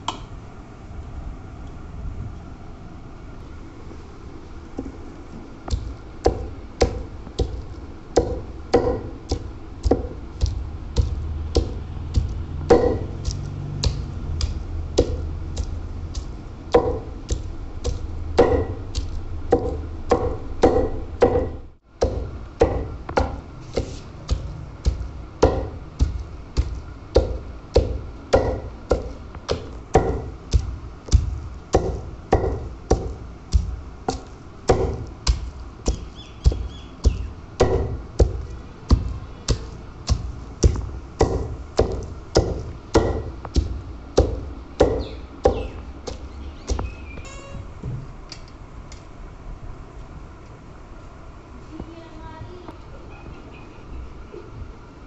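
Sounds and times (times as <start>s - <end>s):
pestle pounding meat in mortar: 5.6s - 47.6s.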